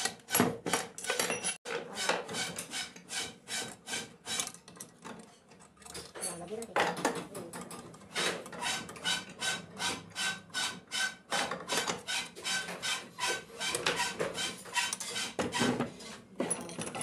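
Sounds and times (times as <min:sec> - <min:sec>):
rasping strokes on metal: 0:01.6 - 0:04.6, 0:08.1 - 0:16.3.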